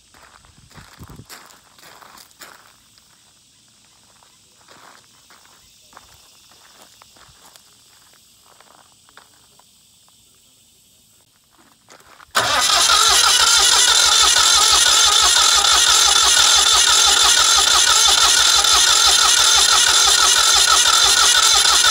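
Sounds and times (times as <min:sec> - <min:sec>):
diesel generator engine running: 0:12.4 - 0:21.9.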